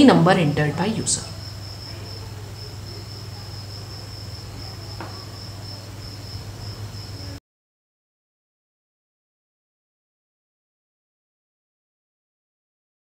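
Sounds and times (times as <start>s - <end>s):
high-pitched insect-like trill: 0.4s - 7.4s.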